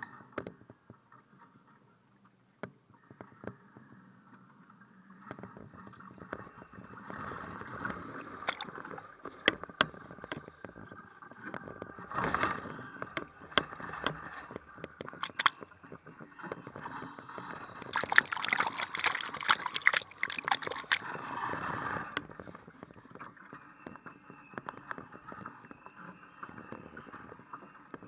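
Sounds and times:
water splashing against hull: 7.6 - 10.6, 13.2 - 15.7, 17.8 - 22.2.

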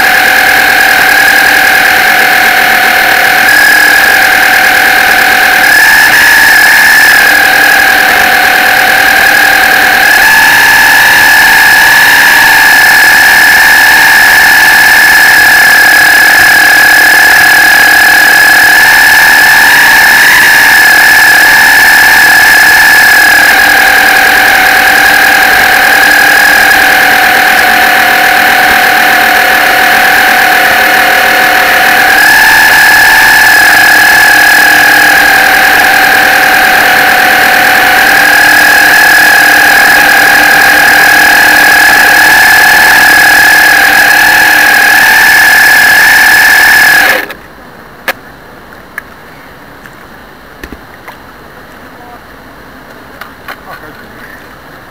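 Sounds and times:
model boat motor whining: 0.0 - 47.4.

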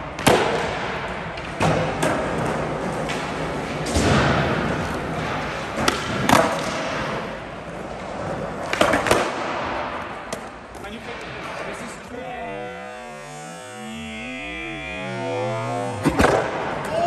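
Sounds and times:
skateboard wheels rolling on concrete: 0.0 - 12.3
skateboard pops and landings: 8.7 - 9.6.

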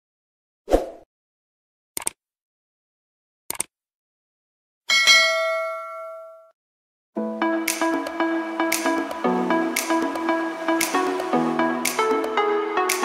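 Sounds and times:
notification bell ding: 4.9 - 6.5.

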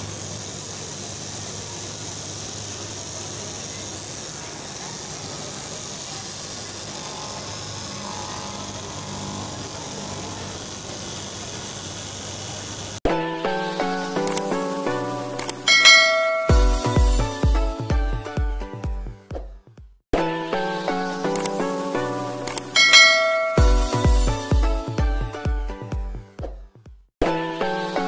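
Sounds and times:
cloth cutting machine humming: 0.0 - 13.0, 15.4 - 17.6, 22.4 - 24.6
bell-like musical jingle: 15.7 - 17.3, 22.8 - 24.3.

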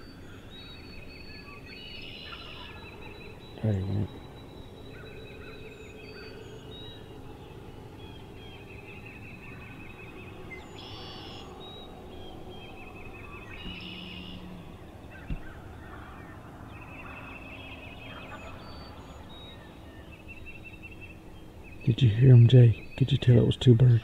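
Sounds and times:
small birds trilling: 0.0 - 24.0
distant turkeys gobbling: 15.1 - 16.4.

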